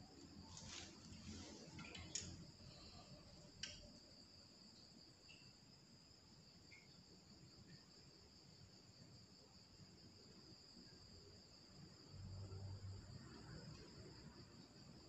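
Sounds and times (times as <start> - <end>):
crickets trilling: 0.0 - 15.0
faint light ticks: 3.6 - 3.9, 6.7 - 7.0.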